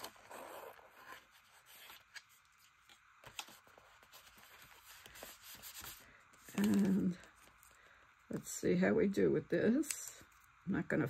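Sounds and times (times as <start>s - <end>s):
paper rubbing and rustling: 0.0s - 7.6s.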